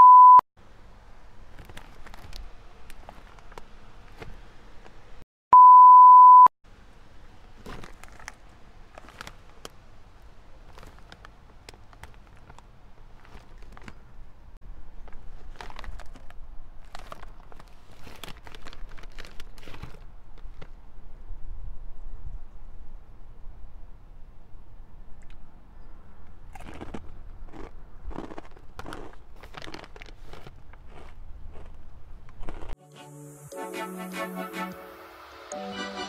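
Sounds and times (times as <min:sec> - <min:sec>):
beep tone sound effect: 0:00.0 - 0:00.4, 0:05.6 - 0:06.5
chip bag crinkling: 0:01.5 - 0:03.8, 0:07.6 - 0:14.1, 0:15.0 - 0:20.8, 0:26.6 - 0:32.7.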